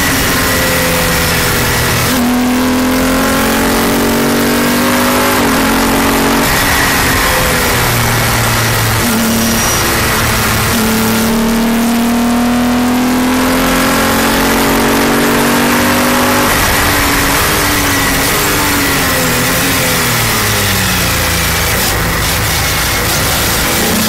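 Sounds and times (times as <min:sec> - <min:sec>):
racing car engine accelerating: 0:00.0 - 0:24.0
road noise: 0:00.0 - 0:24.0
rushing wind: 0:05.4 - 0:11.8.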